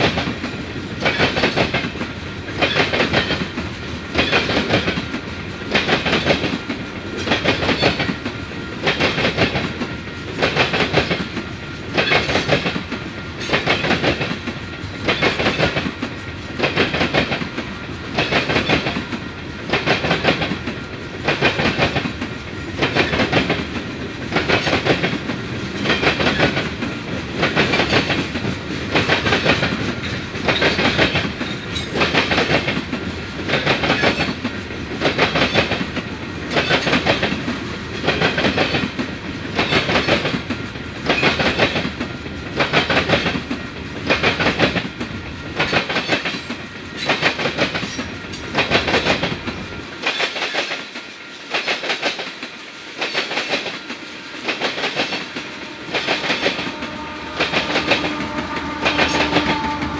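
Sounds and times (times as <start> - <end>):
train wheels clacking over rail joints: 0.0 - 59.9
diesel locomotive hum: 53.6 - 59.9.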